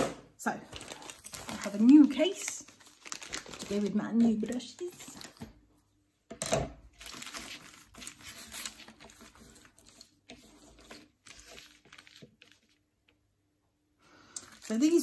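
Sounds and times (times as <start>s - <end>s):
plastic packaging crinkling: 0.6s - 5.5s, 6.9s - 10.1s, 14.4s - 15.0s.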